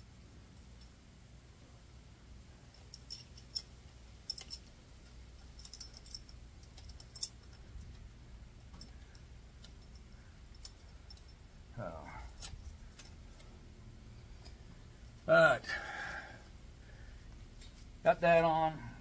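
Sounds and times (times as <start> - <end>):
faint low hum: 0.0 - 19.0
metallic clicks of bolts and ratchet: 2.7 - 8.0, 8.6 - 11.4.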